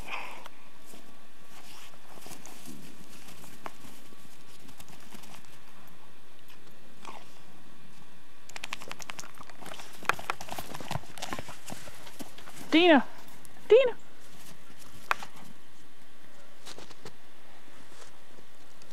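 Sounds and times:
dog chewing a plastic ball: 8.5 - 12.5.

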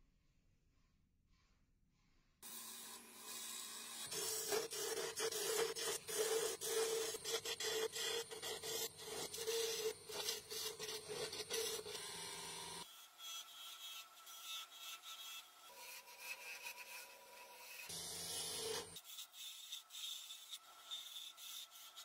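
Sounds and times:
wood lathe humming: 2.4 - 16.2, 17.1 - 19.0
turning tool scraping wood: 2.4 - 22.0.

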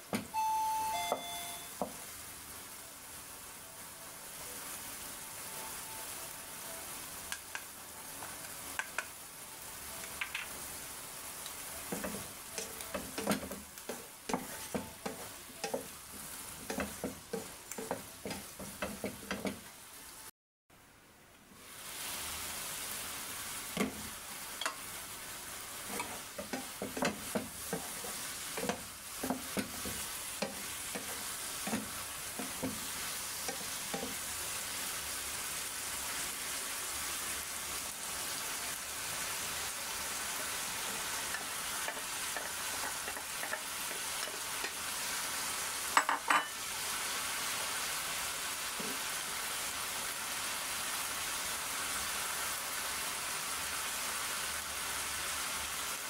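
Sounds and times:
vegetables sizzling in a frying pan: 0.0 - 56.0
spatula knocking on pan: 11.9 - 15.9, 16.6 - 19.6, 25.9 - 28.0, 28.6 - 34.2, 41.4 - 44.8
spatula stirring and scraping: 11.9 - 19.6, 25.8 - 34.2, 40.8 - 44.8.

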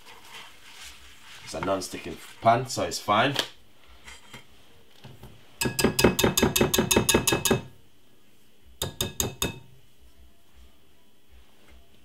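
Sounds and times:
whisk clicking against glass bowl: 5.6 - 7.7, 8.8 - 9.6.

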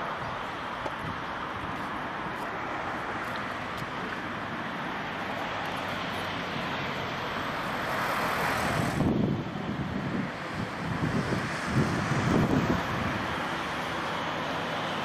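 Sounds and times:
distant jet engine rushing: 0.0 - 15.0
wind buffeting microphone: 8.5 - 13.7.

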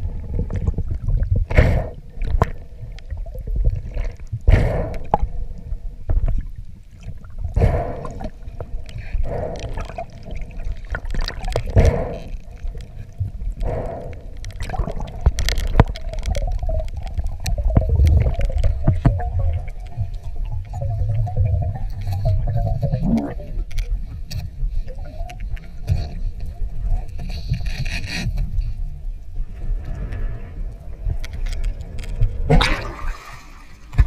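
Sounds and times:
steady low rumble: 0.0 - 33.1
underwater swish: 0.0 - 34.0
water rushing and gurgling: 29.3 - 34.0.

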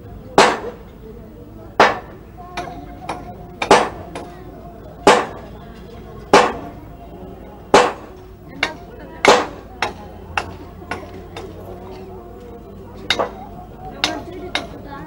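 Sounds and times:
loud ringing hammer strikes: 0.4 - 0.9, 1.8 - 4.3, 5.0 - 5.6, 6.3 - 6.7, 7.7 - 11.5.

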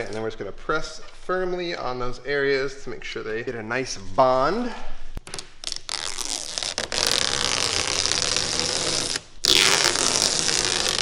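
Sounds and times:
liner peeling off adhesive tape: 5.2 - 11.0.

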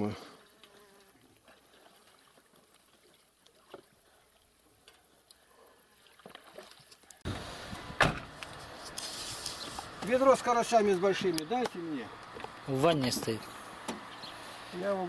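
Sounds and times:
water splashing at pond edge: 0.0 - 10.1.

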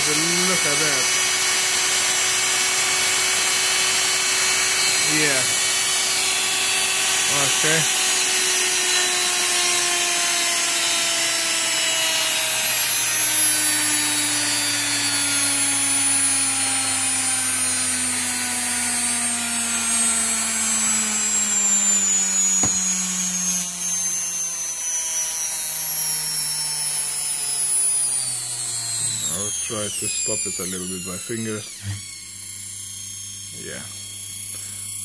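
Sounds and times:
washing machine motor whining: 0.0 - 35.0
sharp click: 22.5 - 23.1.

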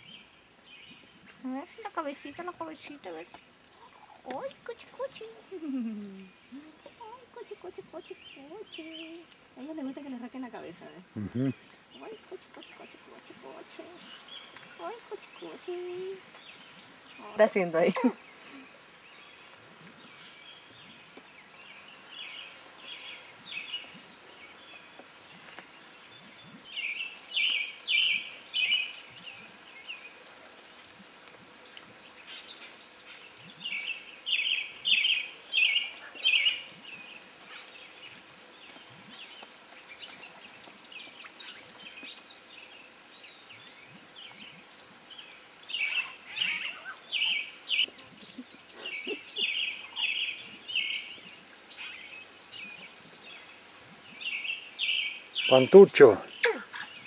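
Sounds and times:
high-pitched insect drone: 4.0 - 57.0
bird calling: 45.8 - 51.2.

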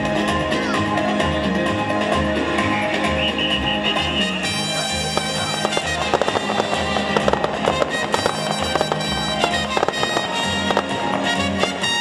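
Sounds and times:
music playing: 0.0 - 12.0
fireworks bangs and crackles: 3.9 - 12.0.

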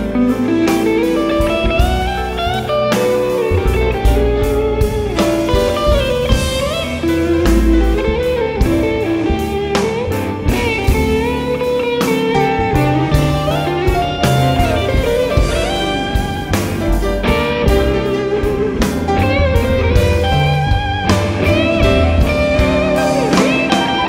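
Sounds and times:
drums: 0.0 - 24.0
electric guitar solo: 0.0 - 24.0
upright bass: 0.0 - 24.0.

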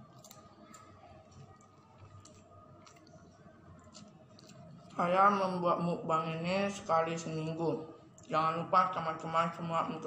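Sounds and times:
person chewing noodles: 0.0 - 5.0.

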